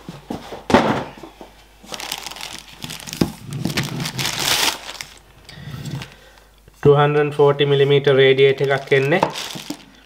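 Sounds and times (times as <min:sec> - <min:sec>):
plastic bag crinkling: 0:01.8 - 0:06.5, 0:08.0 - 0:10.0.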